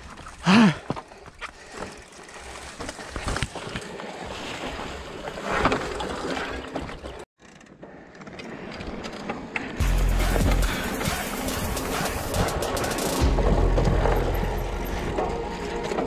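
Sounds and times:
bike rattling over rocky trail: 0.0s - 9.8s.

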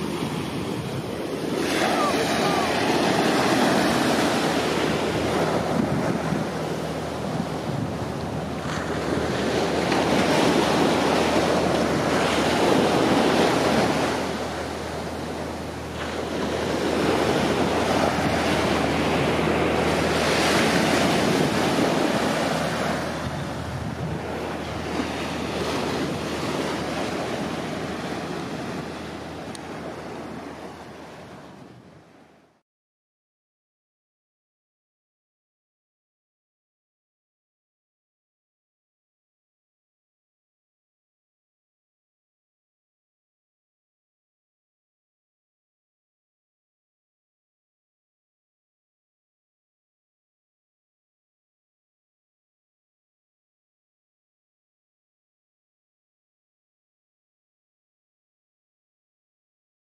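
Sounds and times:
surf washing up a sandy beach: 0.0s - 32.3s.

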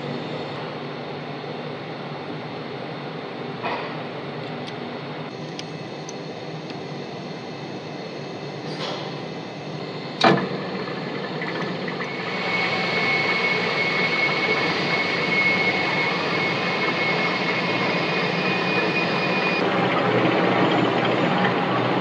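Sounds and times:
lathe running: 5.3s - 22.0s.

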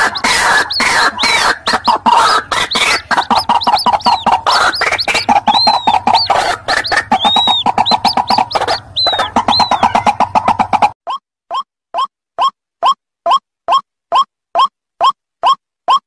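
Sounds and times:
buzzy pulsing bird chatter: 0.0s - 10.6s
waterbirds calling: 0.0s - 10.9s.

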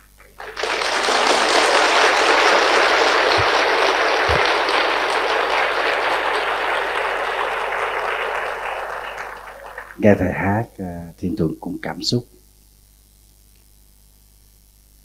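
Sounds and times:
large audience applauding: 0.0s - 10.3s.

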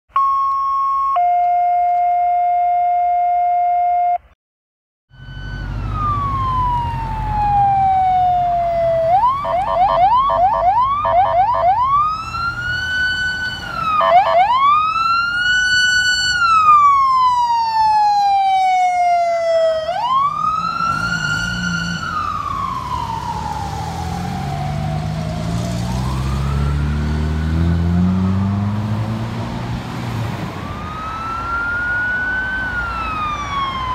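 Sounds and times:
electronic siren wailing and yelping: 5.1s - 28.5s, 30.6s - 33.9s
traffic engine rumble: 5.1s - 33.9s.

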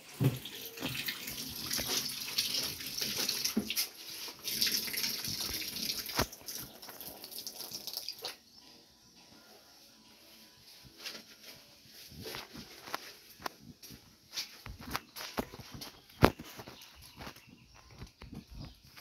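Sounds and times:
tap water running into tub: 0.0s - 8.4s
clothes scrubbed in soapy water: 0.5s - 7.8s.

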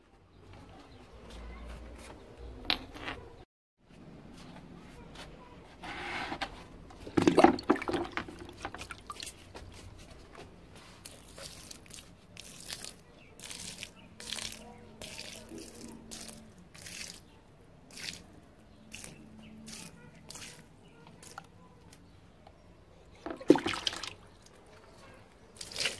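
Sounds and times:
short water splashes: 7.1s - 9.4s, 11.0s - 17.3s, 17.9s - 18.3s, 23.2s - 24.5s, 25.6s - 25.9s
water poured onto soil: 11.0s - 17.3s, 17.9s - 18.3s, 23.3s - 24.5s, 25.6s - 25.9s.

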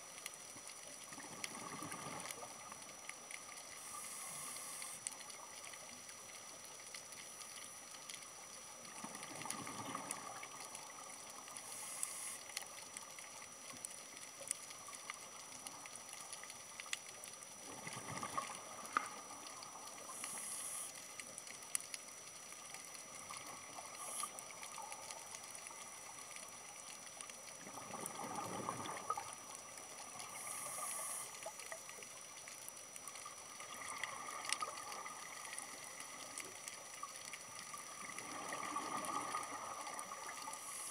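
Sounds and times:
faint steady hiss: 0.0s - 40.9s
small clicks: 0.1s - 40.8s
exhaled bubbles gurgling: 1.0s - 3.0s, 8.7s - 12.4s, 17.6s - 20.8s, 23.0s - 40.9s.

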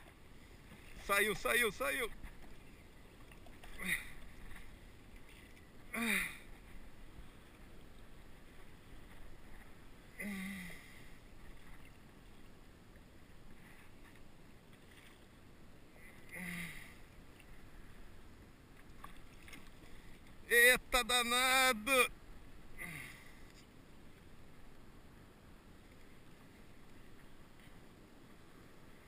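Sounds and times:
water and wind noise: 0.0s - 29.0s.

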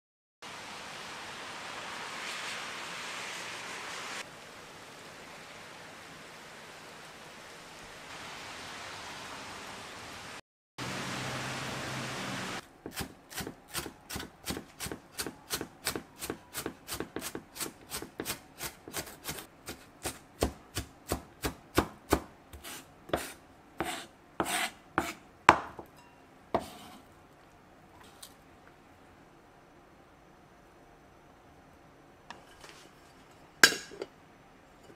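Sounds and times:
rain falling: 0.4s - 12.6s
knife chopping on wooden board: 12.8s - 25.9s, 26.6s - 26.9s.

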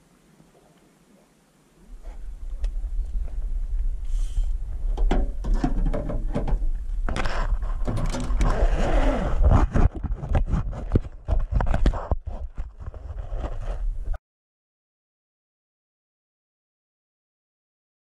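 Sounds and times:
low rumble in metal boat: 1.9s - 10.0s
sharp knocks and clicks: 5.0s - 7.2s.

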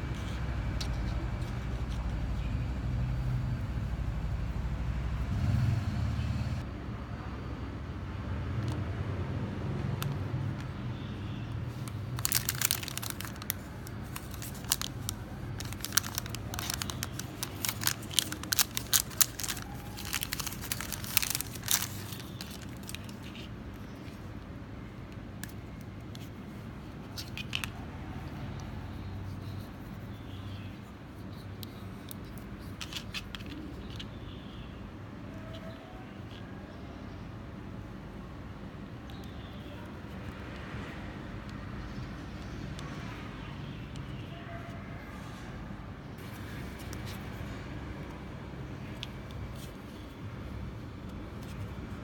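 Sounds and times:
plastic wrapper crinkling and tearing: 11.7s - 24.2s.

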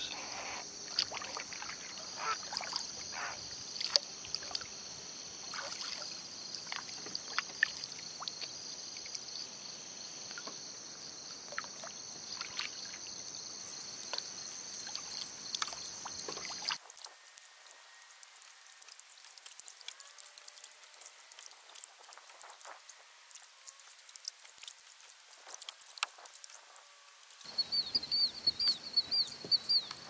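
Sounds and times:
insect chorus: 0.0s - 30.0s
paddle splashes and drips: 0.3s - 9.3s, 11.4s - 13.2s, 13.9s - 17.1s, 18.2s - 26.6s.

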